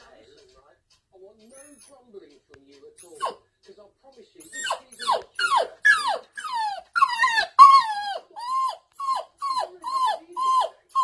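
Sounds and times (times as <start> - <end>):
dog whining: 3.0 - 3.4, 4.4 - 11.0.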